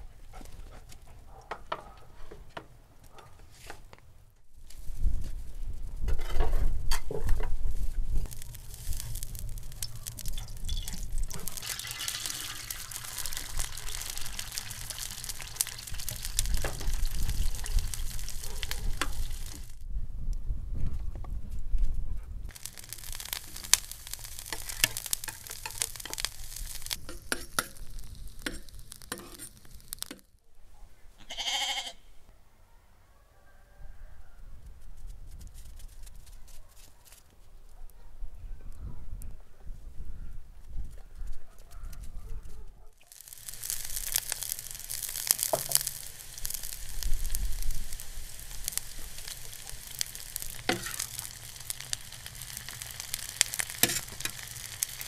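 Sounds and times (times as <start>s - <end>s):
carrots sizzling in hot oil: 7.8s - 19.8s, 22.5s - 30.3s, 43.0s - 55.0s
metal skimmer scraping a pan: 28.4s - 29.6s, 50.3s - 51.3s
sheep bleating: 31.2s - 32.1s.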